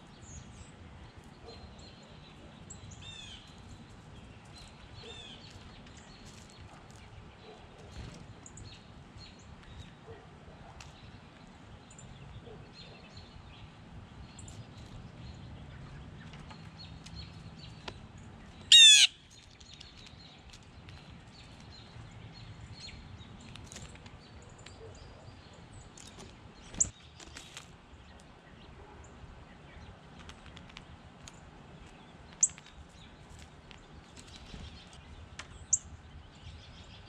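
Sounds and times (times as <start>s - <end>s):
birds chirping faintly: 0.0s - 37.0s.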